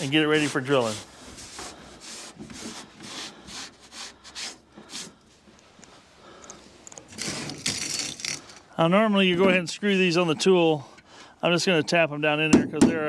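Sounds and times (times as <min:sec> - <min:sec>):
brush rubbing on wood: 0:00.0 - 0:05.2.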